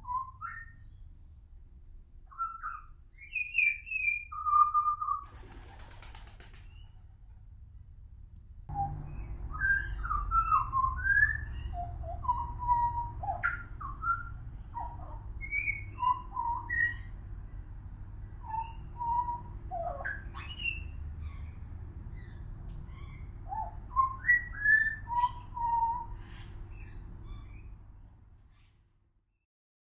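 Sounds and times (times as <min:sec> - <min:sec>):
bird singing whistled notes: 0:00.0 - 0:01.0, 0:02.3 - 0:05.2, 0:08.7 - 0:17.1, 0:18.4 - 0:21.5, 0:22.1 - 0:27.7
steady low hum: 0:17.0 - 0:24.6.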